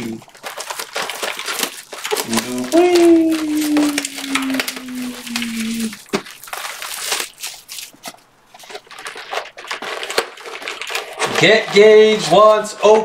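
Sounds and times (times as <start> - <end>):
cards and wrappers rustling: 0.0 - 13.0
man shouting a name: 2.3 - 4.5.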